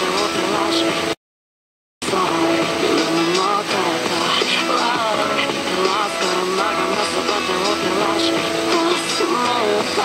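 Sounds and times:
melodic background music: 2.0 - 10.0.

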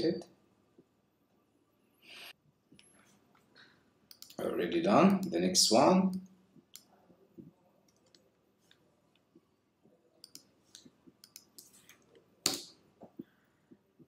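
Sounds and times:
mouse and keyboard clicks: 10.2 - 12.6.

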